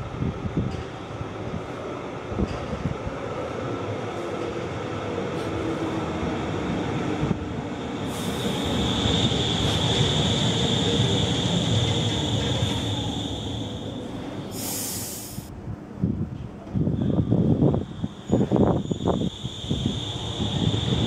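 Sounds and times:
light-rail car rumbling: 0.0s - 21.0s
high steady squeal: 8.0s - 15.3s, 17.4s - 21.0s.

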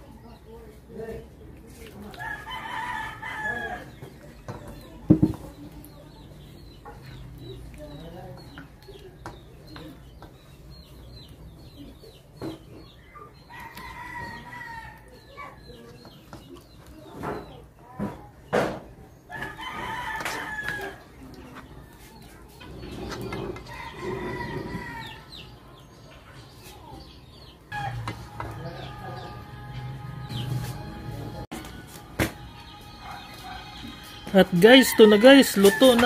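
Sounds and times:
rooster crowing: 2.2s - 3.9s, 13.5s - 15.0s, 19.3s - 21.0s, 23.6s - 25.3s, 27.7s - 28.2s, 34.7s - 36.0s.

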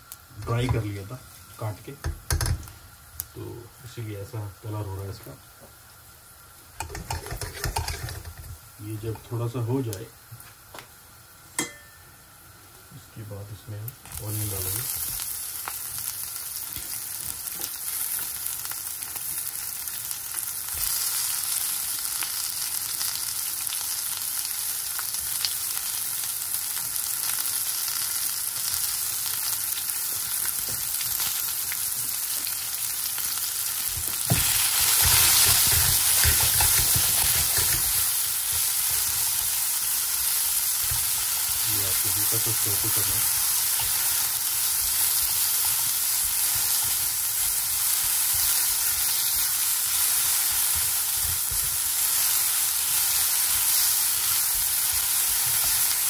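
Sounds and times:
onions sizzling in oil: 0.0s - 56.0s
spatula stirring in pan: 6.8s - 8.5s, 33.8s - 56.0s.

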